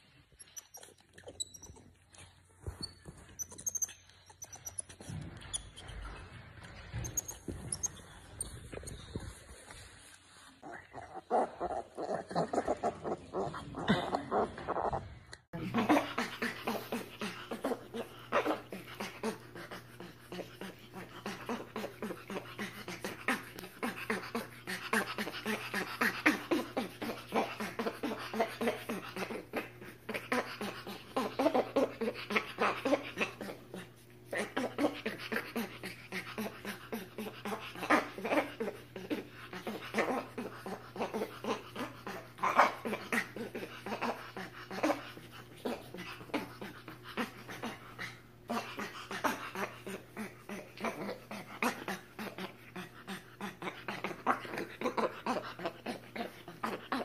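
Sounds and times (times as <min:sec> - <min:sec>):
monkeys squeaking calls: 0:02.8 - 0:06.0.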